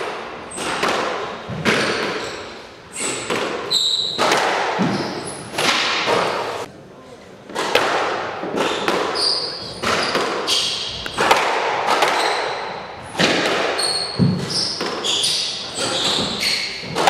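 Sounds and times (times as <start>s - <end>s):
shoes squeaking on court floor: 1.5s - 6.7s, 8.6s - 11.2s, 12.1s - 17.0s.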